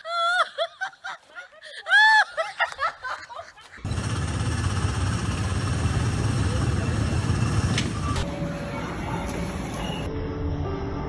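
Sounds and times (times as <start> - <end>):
people laughing and squealing: 0.0 - 3.9
ride cars rumbling on track: 3.8 - 10.1.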